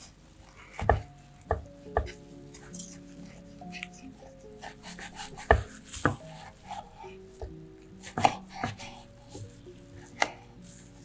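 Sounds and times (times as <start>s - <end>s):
knife knocking on cutting board: 5.4s - 6.2s.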